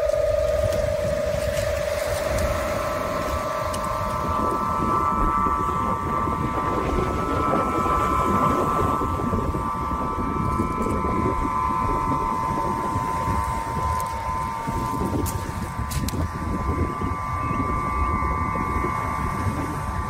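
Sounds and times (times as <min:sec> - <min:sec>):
low rough rumble: 0:00.0 - 0:20.0
wind harp high tones: 0:00.0 - 0:20.0.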